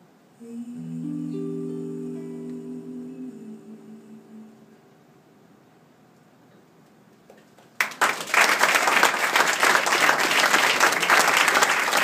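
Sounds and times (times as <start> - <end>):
audience applause: 7.8 - 12.0.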